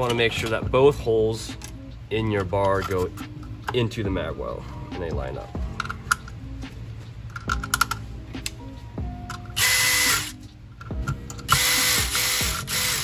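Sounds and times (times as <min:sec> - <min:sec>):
clicks of plastic parts handled: 0:07.3 - 0:08.6
cordless drill driving screws: 0:11.5 - 0:13.0.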